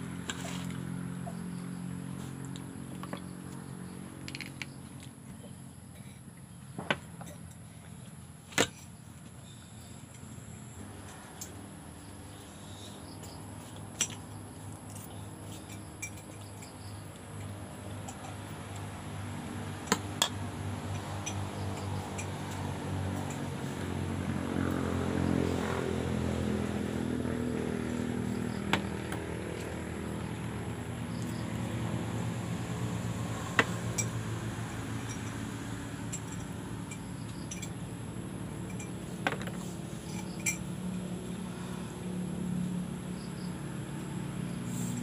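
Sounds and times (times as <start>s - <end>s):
low motor drone: 14.4s - 45.0s.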